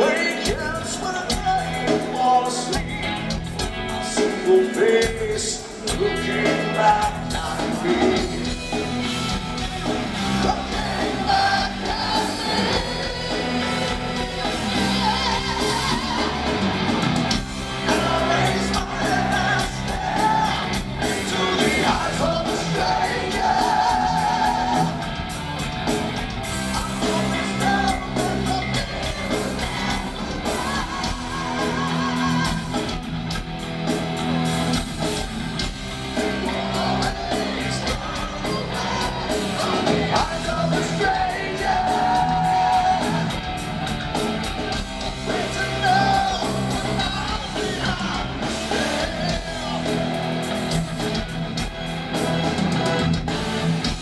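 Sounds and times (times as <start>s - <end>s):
man singing: 0.0s - 3.3s, 4.0s - 8.8s, 10.2s - 16.4s, 17.8s - 25.0s, 26.7s - 32.9s, 36.2s - 43.4s, 45.2s - 50.2s
bass guitar: 0.0s - 54.0s
distorted electric guitar: 0.0s - 54.0s
drums: 0.0s - 54.0s
heavy metal band playing live: 0.0s - 54.0s.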